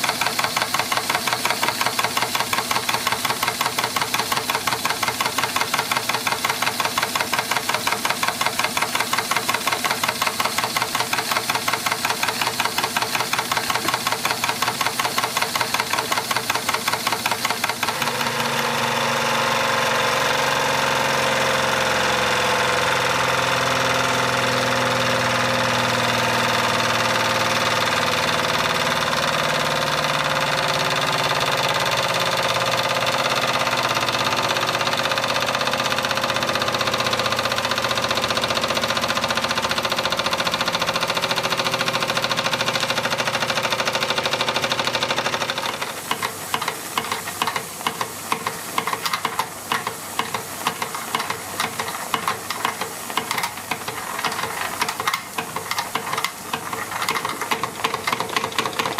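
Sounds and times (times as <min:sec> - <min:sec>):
steam hiss: 0:00.0 - 0:18.5, 0:43.8 - 0:58.9
steam engine ticking and chuffing: 0:00.0 - 0:18.9, 0:21.3 - 0:58.9
model steam engine whirring: 0:00.0 - 0:58.9.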